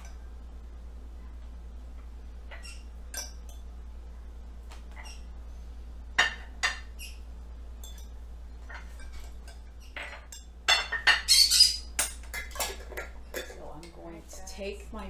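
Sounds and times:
steady low hum: 0.0s - 15.0s
fork clinking against glass jar: 7.8s - 8.1s.

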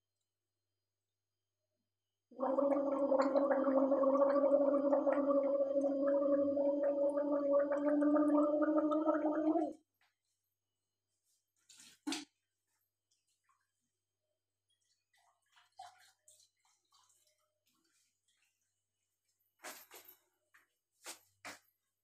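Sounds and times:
woman gargling: 2.4s - 9.8s.

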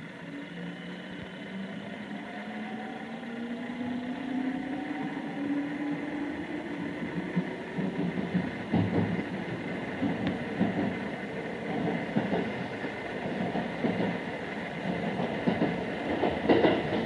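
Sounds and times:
train traction motors whining: 0.0s - 17.0s.

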